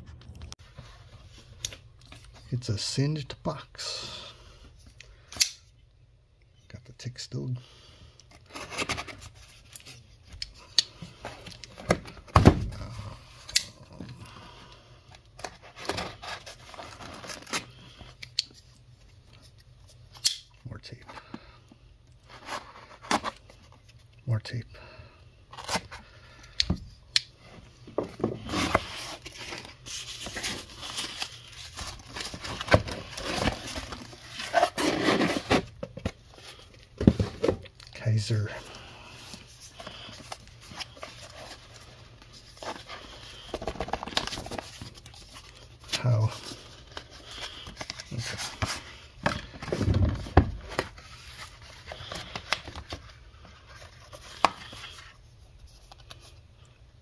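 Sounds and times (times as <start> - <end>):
cardboard rustling and crinkling: 27.4 - 38.3, 39.2 - 56.4
cardboard tearing: 28.4 - 35.8.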